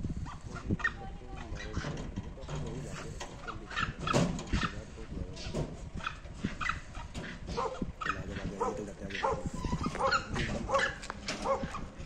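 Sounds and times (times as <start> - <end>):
animal calling: 2.8 - 12.0.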